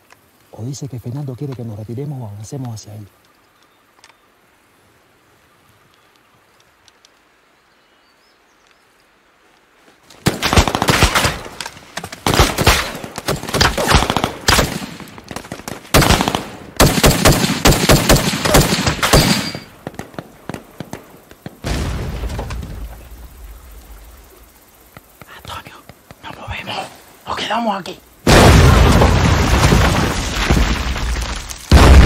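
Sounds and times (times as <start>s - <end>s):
rifle and automatic gunfire: 10.3s - 11.4s, 12.2s - 15.0s, 15.9s - 19.6s.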